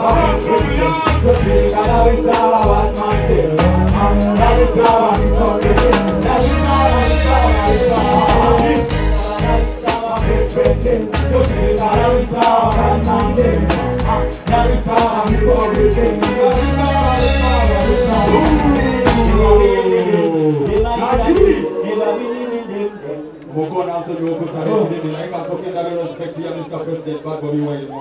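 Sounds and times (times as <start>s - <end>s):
band with heavy beat: 0.0s - 19.8s, 20.6s - 21.6s
men singing into microphones: 0.0s - 23.1s.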